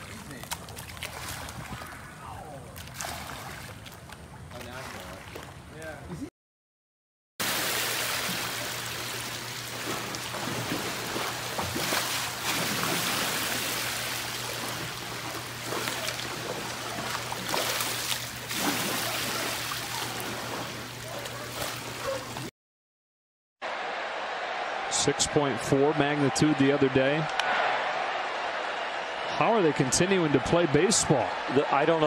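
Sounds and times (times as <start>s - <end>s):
pool water sloshing and splashing: 0.0s - 6.1s, 7.4s - 22.5s.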